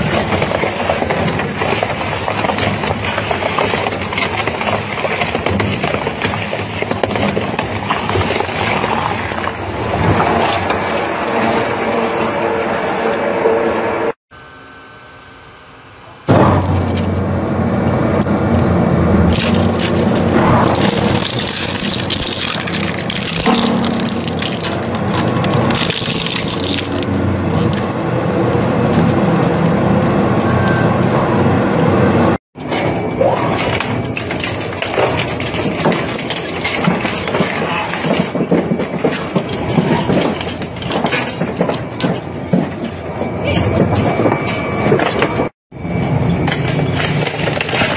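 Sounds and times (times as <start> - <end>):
plastic crunching and cracking: 0.0 - 11.6, 19.3 - 30.5, 46.5 - 47.9
shredder blades crushing and grinding: 0.0 - 13.2, 19.1 - 30.6, 32.6 - 43.0, 46.4 - 47.9.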